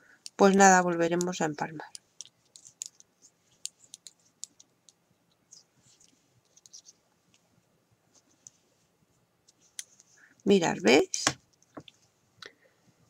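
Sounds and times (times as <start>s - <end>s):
knitting needles clicking: 0.2s - 6.9s, 9.4s - 10.1s.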